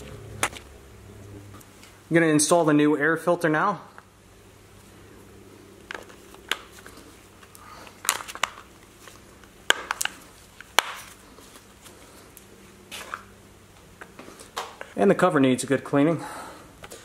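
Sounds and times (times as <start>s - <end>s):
faint steady hum: 0.0s - 17.0s
plastic clicks and rustling: 5.9s - 11.1s
sharp plastic snaps: 9.6s - 11.1s.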